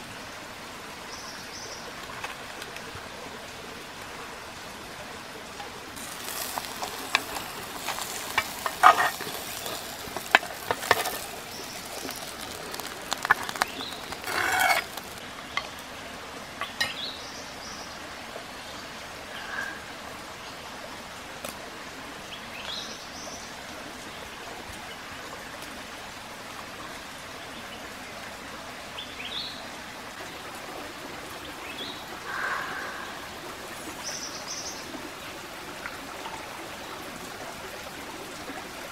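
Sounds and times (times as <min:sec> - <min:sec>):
steady stream running: 0:00.0 - 0:38.9
spoon scraping clay pan: 0:06.0 - 0:15.2.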